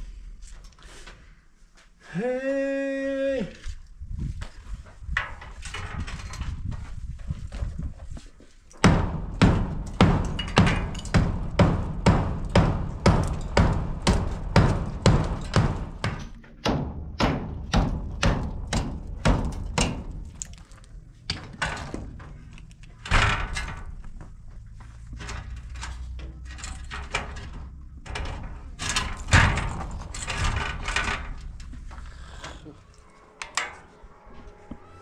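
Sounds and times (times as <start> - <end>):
loud knock: 8.8 - 20.2
door frame knocking and scraping: 8.8 - 20.4
hammer and chisel chipping wall: 8.8 - 22.4.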